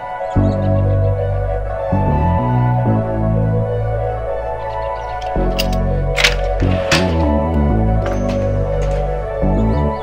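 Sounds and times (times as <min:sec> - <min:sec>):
ambient music: 0:00.0 - 0:10.0.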